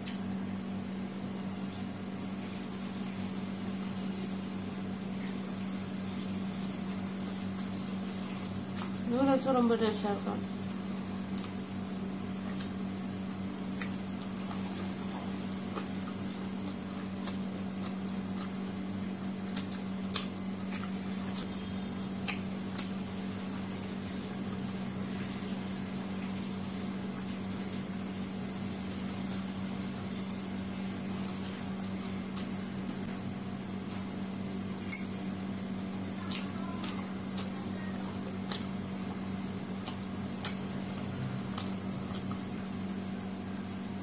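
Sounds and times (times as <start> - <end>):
steady background hum: 0.0 - 44.0
chewing clicks and smacks: 11.3 - 11.6, 13.7 - 14.6, 16.6 - 18.8, 19.4 - 21.5, 22.2 - 23.0, 32.3 - 33.0, 36.2 - 38.9, 39.7 - 42.5
faint high whine: 21.4 - 22.2, 34.8 - 38.2, 42.5 - 44.0.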